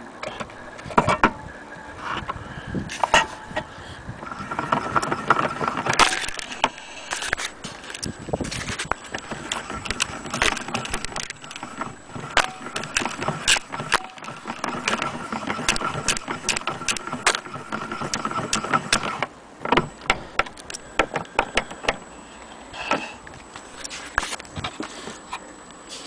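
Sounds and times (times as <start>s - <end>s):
faint steady whine: 0.0s - 26.0s
gramophone clicks and rattles: 2.1s - 22.1s.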